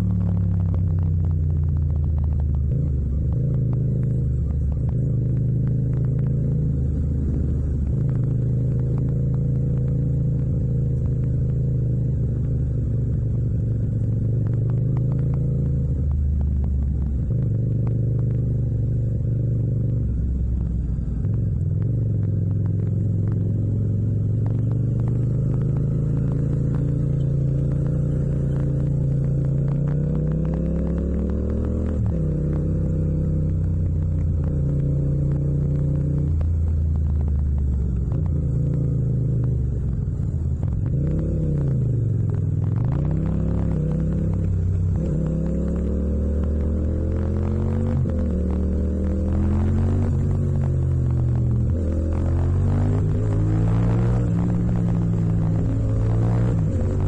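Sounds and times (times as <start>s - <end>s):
motorcycle engine running at low revs: 0.0s - 57.0s.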